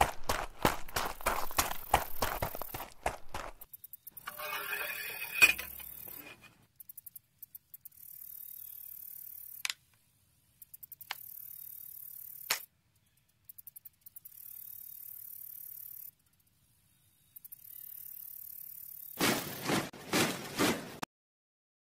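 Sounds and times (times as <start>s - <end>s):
quick ticks: 10.6s - 16.4s.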